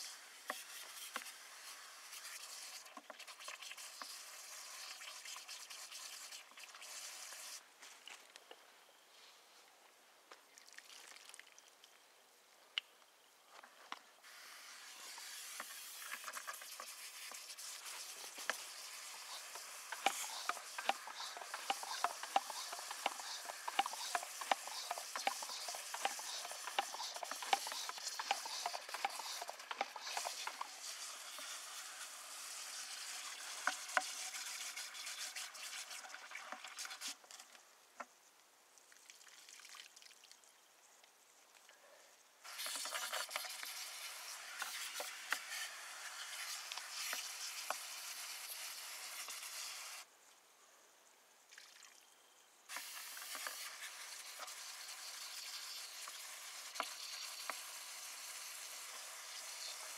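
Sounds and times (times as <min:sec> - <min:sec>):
brush churning froth in bucket: 0:14.8 - 0:37.1.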